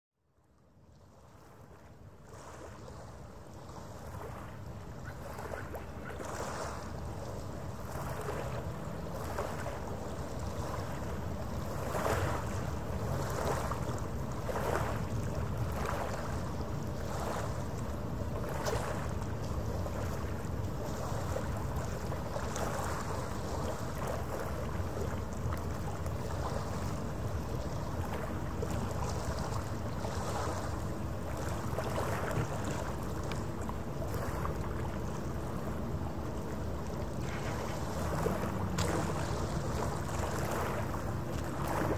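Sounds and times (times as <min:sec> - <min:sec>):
small waves washing on shore: 0:00.8 - 0:41.9
steady low rumble: 0:24.6 - 0:41.9.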